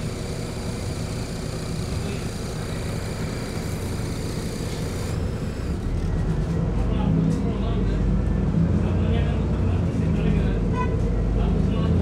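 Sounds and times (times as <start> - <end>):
bus engine and road noise: 0.0 - 12.0.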